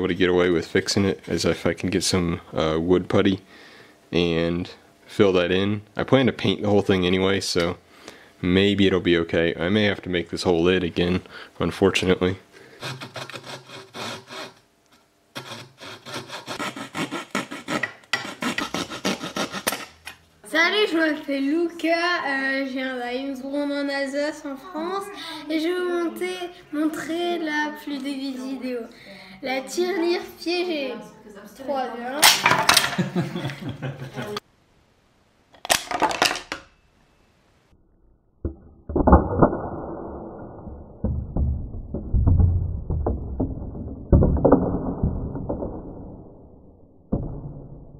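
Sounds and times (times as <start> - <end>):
saw cutting wood: 12.7 - 14.6, 15.4 - 20.1.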